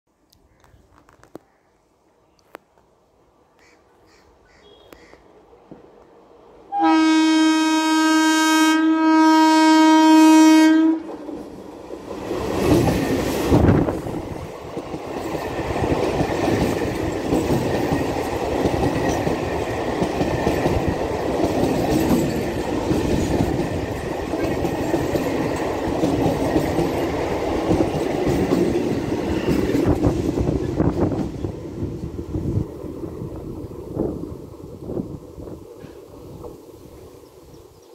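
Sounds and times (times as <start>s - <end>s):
train horn blast: 6.7s - 11.1s.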